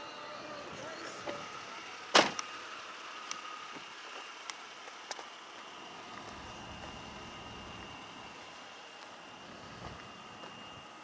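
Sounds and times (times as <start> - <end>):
faint steady whine: 0.0 - 11.0.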